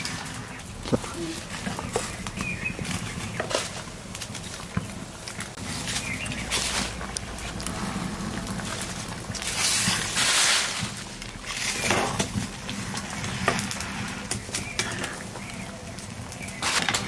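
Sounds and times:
curry boiling in a pan: 0:00.0 - 0:17.0
metal ladle stirring and sloshing: 0:05.6 - 0:15.6.

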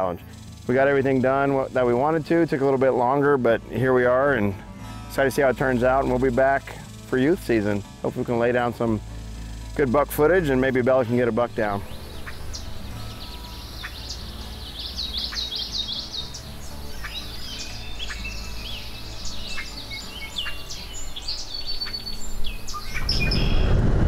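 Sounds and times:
birds chirping and singing: 0:00.0 - 0:23.9
steady rushing noise: 0:18.4 - 0:24.0.

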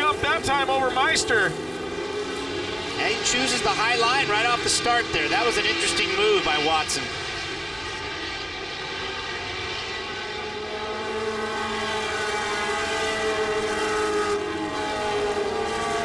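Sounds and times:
race car engines running hard: 0:00.0 - 0:16.0.

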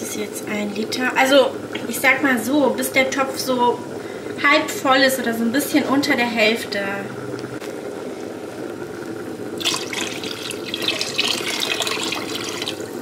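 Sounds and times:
water pouring into a pot: 0:09.5 - 0:13.0.

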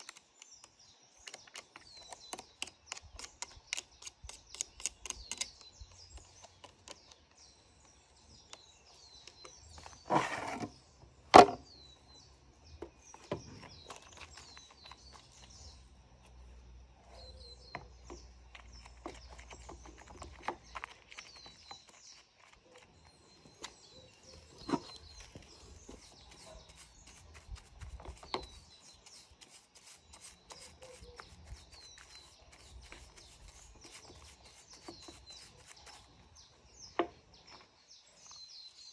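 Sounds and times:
birds chirping: 0:00.0 - 0:38.9
brush scrubbing: 0:24.8 - 0:36.3.

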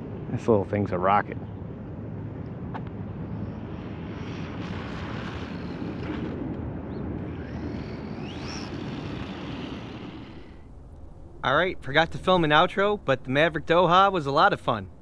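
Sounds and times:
wind buffeting microphone: 0:00.0 - 0:15.0
electric motor whine: 0:03.2 - 0:10.7.

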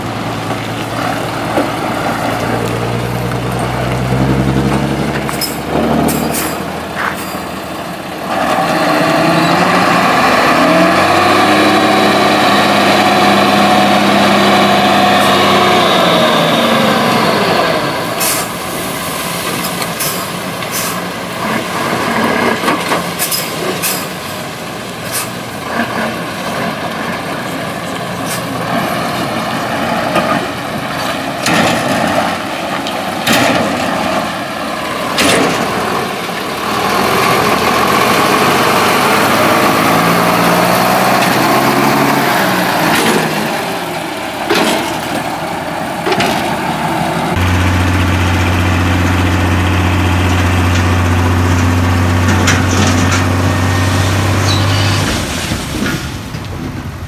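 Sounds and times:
diesel engine revving: 0:00.0 - 0:57.0
soil sliding out: 0:47.4 - 0:56.6.

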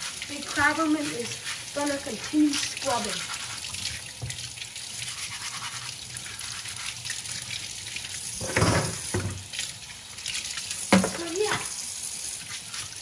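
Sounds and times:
scratchy scrubbing of shells: 0:00.0 - 0:03.9, 0:05.0 - 0:07.0
tap water splashing into sink: 0:00.0 - 0:04.8, 0:07.4 - 0:11.8.

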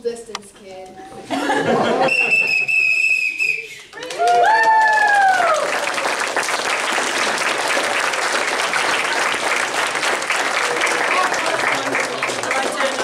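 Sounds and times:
high whooping cheer: 0:02.3 - 0:06.2
audience applauding: 0:03.7 - 0:13.0.

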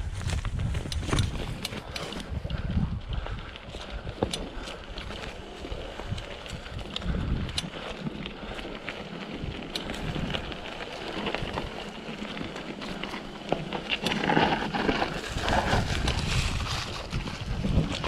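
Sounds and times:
wind on microphone: 0:00.0 - 0:08.5, 0:14.8 - 0:18.0
bike clicks and rattles: 0:00.0 - 0:18.0
bike tyres over leaves and stones: 0:00.0 - 0:18.0.

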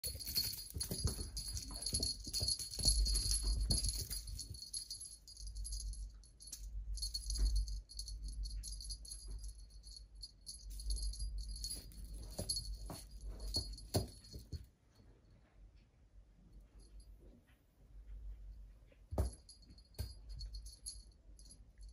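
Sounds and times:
soft bumps and rustling: 0:00.0 - 0:05.8, 0:10.7 - 0:14.7
small jingle bell jingling: 0:00.0 - 0:14.6, 0:19.1 - 0:21.9.

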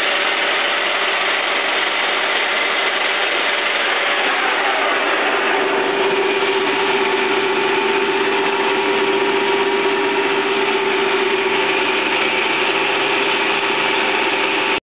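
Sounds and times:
lathe running: 0:00.0 - 0:14.8.

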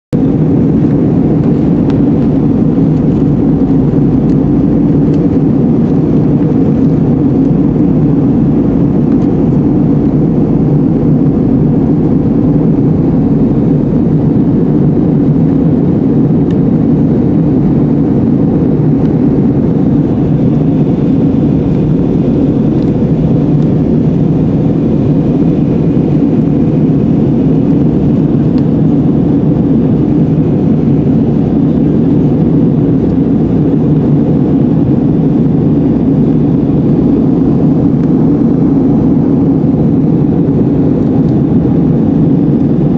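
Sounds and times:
airplane cabin roar: 0:00.0 - 0:42.9.

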